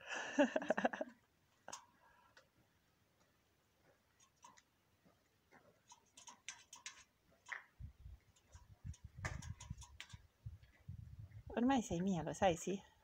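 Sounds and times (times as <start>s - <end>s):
bird bill pecking on metal: 4.1s - 4.8s, 5.7s - 10.4s.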